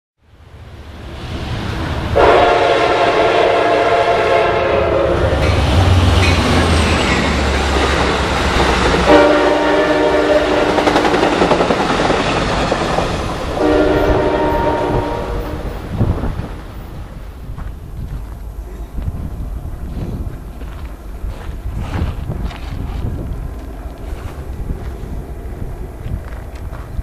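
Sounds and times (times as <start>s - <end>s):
passenger train rumbling past: 0.2s - 27.0s
train horn blasts: 2.2s - 5.4s, 9.0s - 10.9s, 13.6s - 15.8s.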